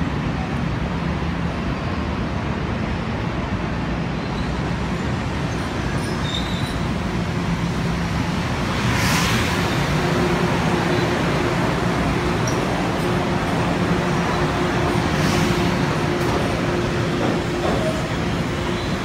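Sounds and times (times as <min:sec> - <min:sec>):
train rumble and motor hum: 0:00.0 - 0:19.0.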